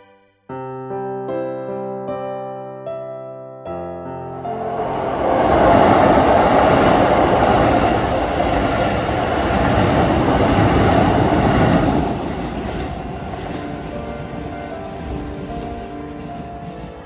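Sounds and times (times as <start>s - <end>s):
train wheels rumbling on rails: 4.4s - 17.0s.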